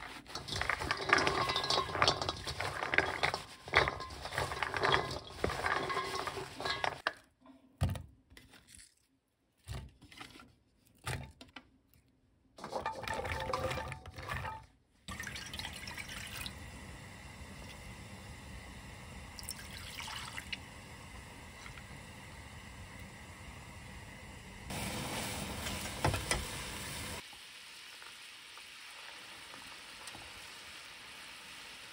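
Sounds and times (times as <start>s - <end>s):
liquid pouring into a pot: 0.0s - 7.1s, 12.6s - 17.9s, 19.1s - 23.1s
paper towel rustling: 0.0s - 7.1s
steady hiss: 20.8s - 31.9s.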